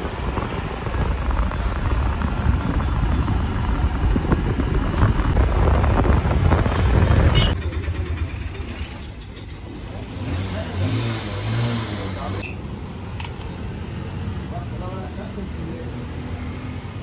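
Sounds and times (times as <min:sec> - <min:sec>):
wind noise on microphone: 0:00.0 - 0:07.6
motorcycle engine rumble: 0:00.0 - 0:15.8
traffic noise: 0:00.0 - 0:17.0.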